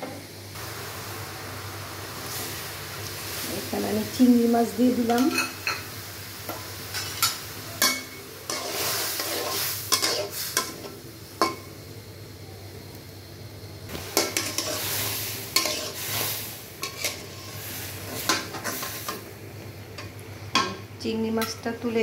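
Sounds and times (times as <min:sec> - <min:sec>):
shrimp sizzling in hot oil: 0:00.3 - 0:22.0
spatula scraping a wok: 0:06.6 - 0:11.0, 0:14.1 - 0:19.2.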